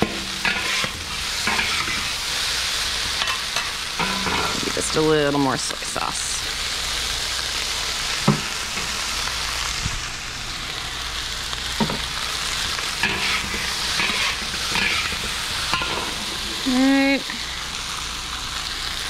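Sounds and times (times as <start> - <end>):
spatulas scraping pan: 0.0 - 2.2, 3.1 - 5.0, 13.0 - 16.9
rice sizzling in a wok: 0.0 - 19.0.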